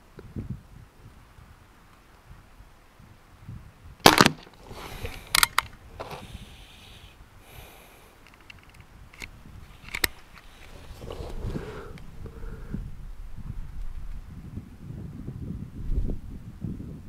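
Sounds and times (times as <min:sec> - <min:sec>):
air pistol firing crack: 0:04.0 - 0:05.7.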